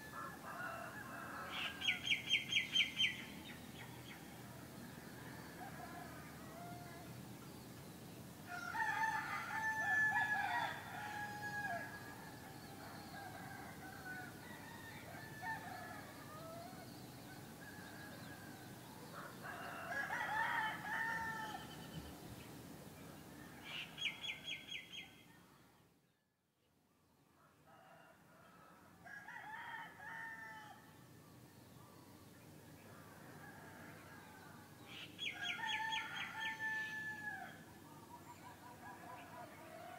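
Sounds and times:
rooster crowing: 0.0s - 1.9s, 5.2s - 7.1s, 8.5s - 16.9s, 17.5s - 21.8s, 27.6s - 30.8s, 35.2s - 37.6s
low background noise: 0.0s - 39.9s.

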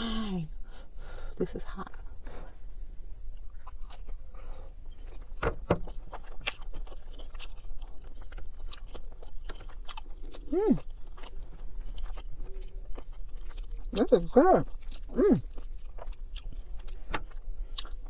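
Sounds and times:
person chewing with wet smacks: 4.9s - 18.0s
person humming: 10.5s - 10.8s.

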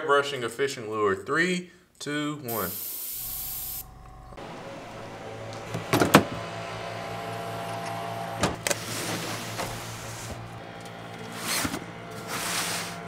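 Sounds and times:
airbrush spraying hiss: 2.5s - 3.9s
steady low hum: 3.1s - 13.0s.

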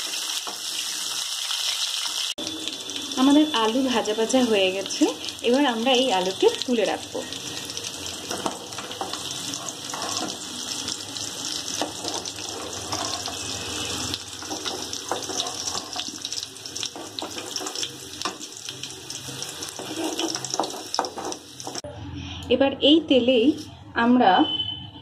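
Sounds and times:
potatoes sizzling in hot oil: 0.0s - 21.9s
metal utensil scraping pan: 8.3s - 10.7s, 11.7s - 13.8s, 14.4s - 18.5s, 19.1s - 21.8s.

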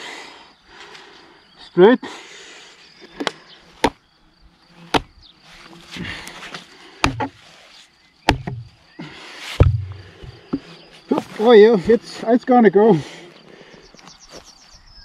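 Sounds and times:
knife hammered into wood: 7.0s - 7.3s, 8.3s - 8.6s.

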